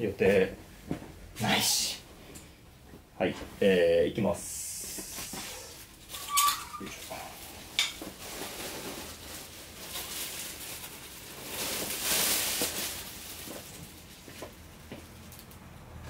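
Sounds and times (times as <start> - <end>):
rustling: 4.7 - 15.6.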